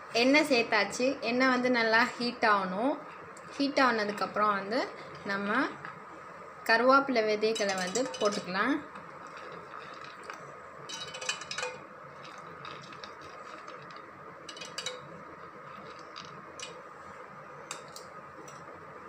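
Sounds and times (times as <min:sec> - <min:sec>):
faint steady hiss: 0:00.0 - 0:19.0
berries clicking on metal: 0:07.5 - 0:16.8.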